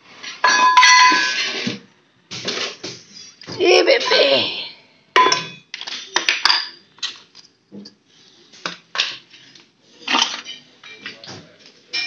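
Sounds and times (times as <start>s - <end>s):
household items knocking and clinking: 0.2s - 4.3s, 5.2s - 6.8s.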